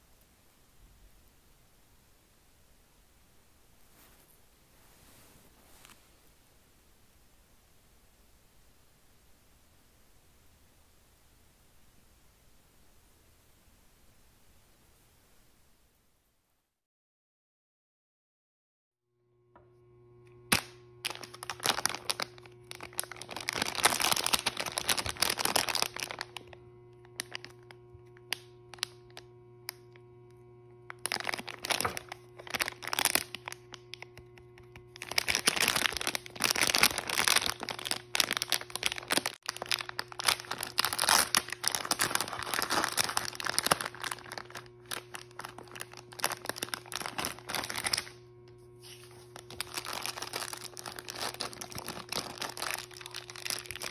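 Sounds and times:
foil and plastic wrapper crinkling: 20.4 - 30.0, 30.8 - 53.9
sharp wrapper crack: 20.5 - 26.4, 30.9 - 48.2, 49.4 - 53.9.

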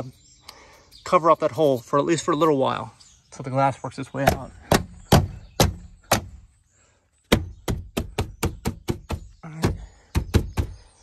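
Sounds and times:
sharp knocks on truck door: 4.3 - 6.3, 7.3 - 10.8.

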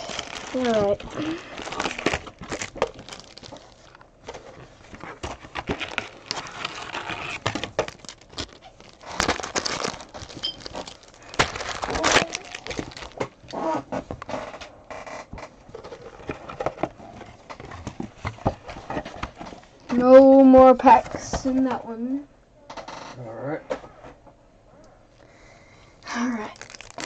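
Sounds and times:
foil wrappers crinkling: 0.0 - 13.8, 26.0 - 27.0.

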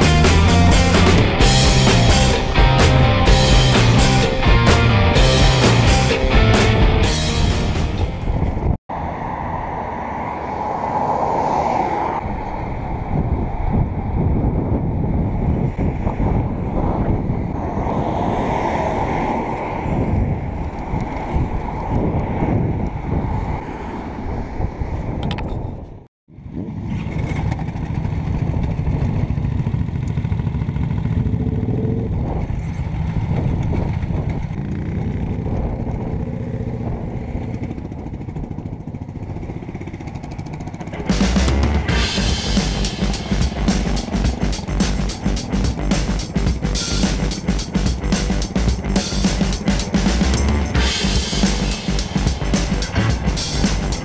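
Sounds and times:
road noise: 0.0 - 54.0
wind on microphone: 7.4 - 41.0
motorcycle engines running: 26.6 - 54.0.

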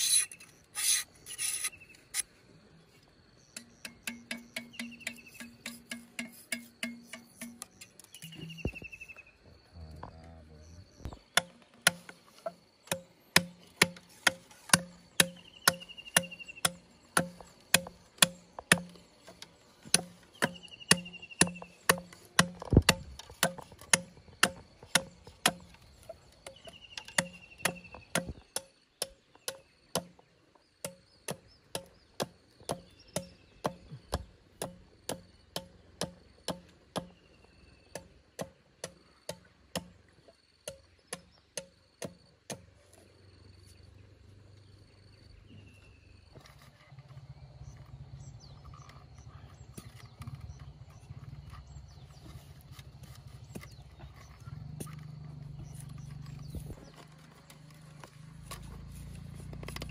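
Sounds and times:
faint high insect drone: 0.0 - 59.9
machete knocking on bamboo: 12.9 - 19.0, 19.9 - 25.8, 26.5 - 30.2.

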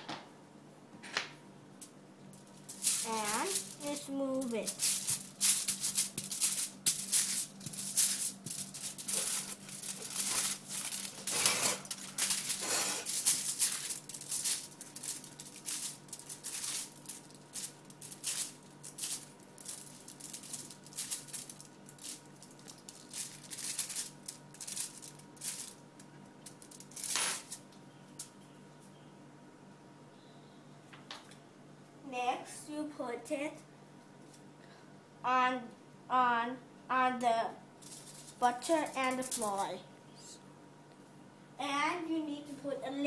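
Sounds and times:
aluminium foil crinkling: 2.4 - 28.4, 37.8 - 39.8.

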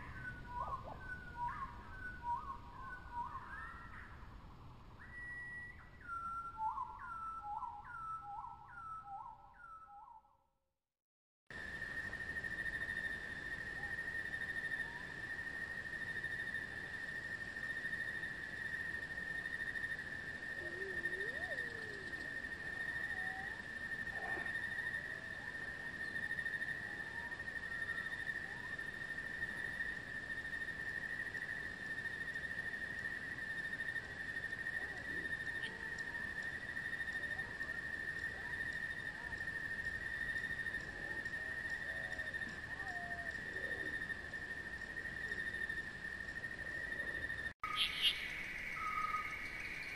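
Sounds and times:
whistled bird phrase: 0.0 - 4.2, 5.0 - 10.4, 47.6 - 49.8
faint bird calls: 0.0 - 4.3, 20.4 - 28.9, 46.7 - 49.9
high-pitched insect trill: 11.6 - 49.9.

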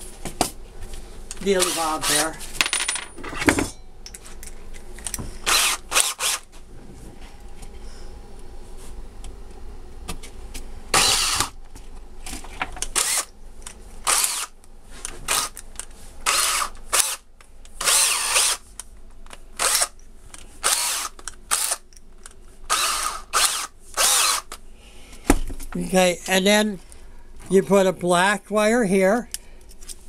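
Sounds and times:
power drill driving screws: 1.6 - 2.2, 5.4 - 6.4, 10.9 - 11.6, 12.9 - 13.3, 14.0 - 14.5, 15.3 - 15.6, 16.2 - 17.2, 17.8 - 18.6, 19.6 - 20.0, 20.6 - 21.8, 22.7 - 24.6.

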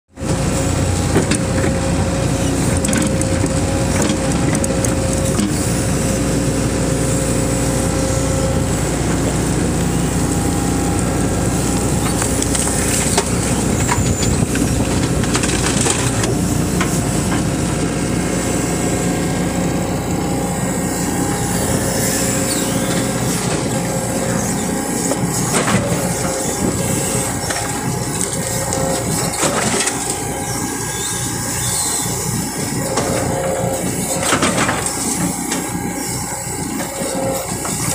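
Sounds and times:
excavator diesel engine running: 0.1 - 37.9
steady whine: 0.1 - 37.9
soil and stones clattering: 12.0 - 17.0.

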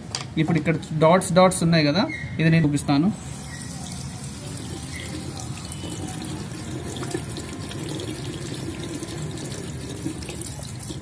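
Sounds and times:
tap water running into washbasin: 3.3 - 11.0.

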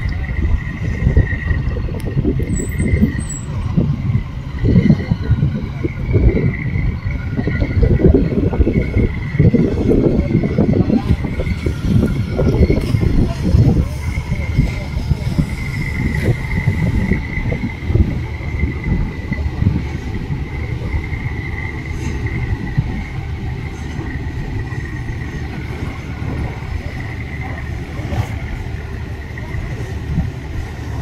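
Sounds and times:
engine rumbling: 0.0 - 31.0
high steady whine: 0.0 - 31.0.

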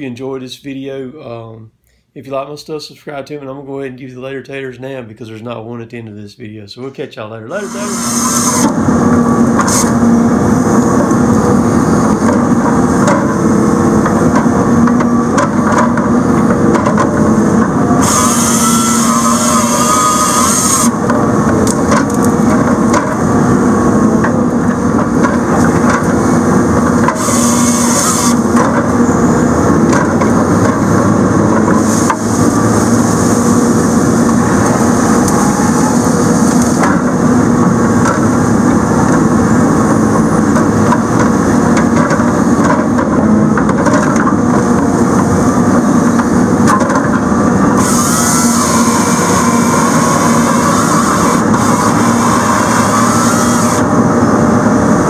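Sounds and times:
diesel engine and hydraulics working: 7.4 - 55.0
grapple saw cutting stump: 7.6 - 10.3, 16.8 - 23.0, 27.0 - 29.0, 47.7 - 53.9.

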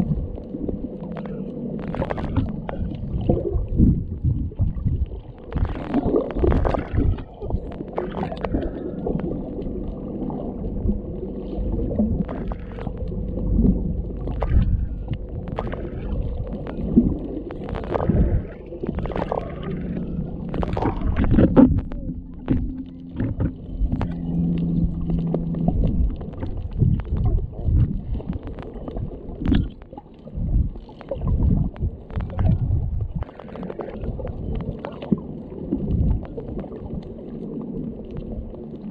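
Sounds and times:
faint steady hum: 0.0 - 38.9
underwater rumble of moving water: 0.0 - 38.9
sharp clicks and knocks: 20.5 - 28.7.

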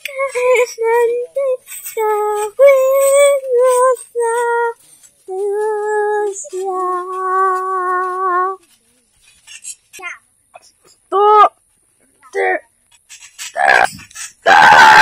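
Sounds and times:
person singing unaccompanied: 0.0 - 8.8.

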